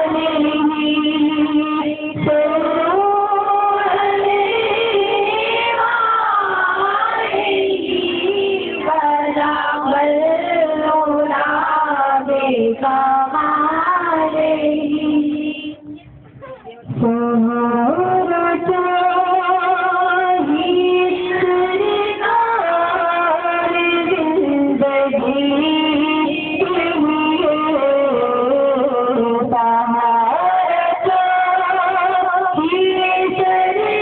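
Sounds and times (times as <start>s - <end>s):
person singing long sliding notes: 0.0s - 15.9s.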